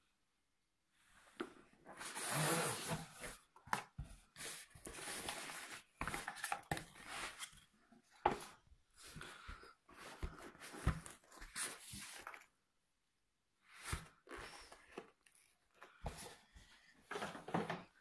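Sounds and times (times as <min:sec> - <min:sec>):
cardboard box scraping open: 0:02.0 - 0:03.4.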